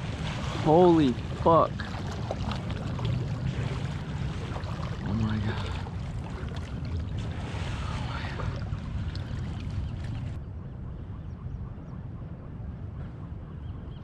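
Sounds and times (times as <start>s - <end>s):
water sloshing: 0.0s - 10.4s
wind rumbling on microphone: 0.0s - 14.0s.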